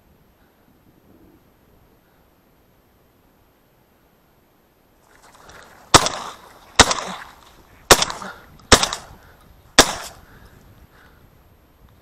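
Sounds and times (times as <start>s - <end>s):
shotgun shots with echo: 5.9s - 9.2s, 9.8s - 10.2s.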